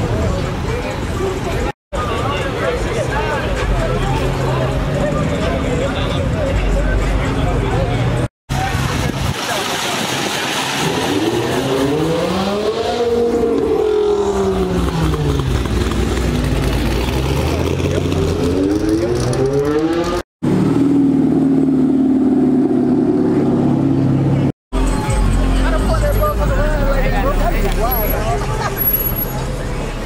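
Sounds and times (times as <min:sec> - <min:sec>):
car engine revving: 0:10.5 - 0:24.5.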